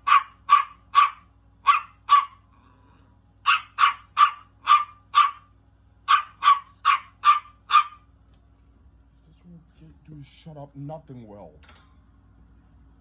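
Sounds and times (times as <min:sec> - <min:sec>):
small dog yapping: 0:00.0 - 0:02.4, 0:03.4 - 0:05.5, 0:06.1 - 0:08.0.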